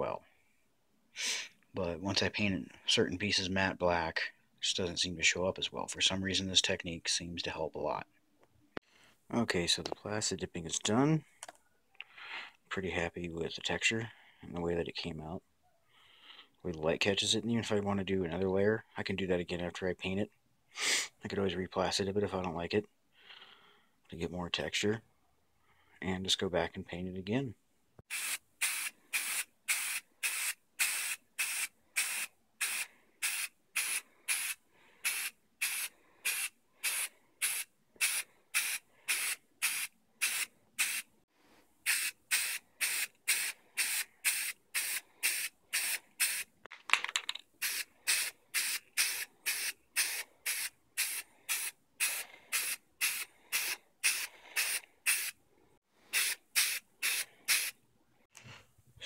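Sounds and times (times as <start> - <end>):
spray can hissing: 28.1 - 41.0, 41.8 - 46.5, 47.6 - 55.4, 56.1 - 57.7.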